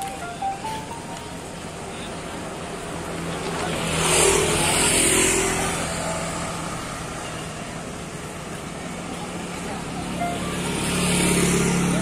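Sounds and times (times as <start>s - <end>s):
motorbike engine passing: 9.0s - 12.0s.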